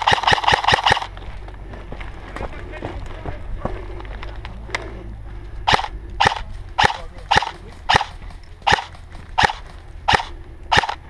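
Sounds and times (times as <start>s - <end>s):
airsoft rifle shots: 0.0s - 1.1s, 5.7s - 11.0s.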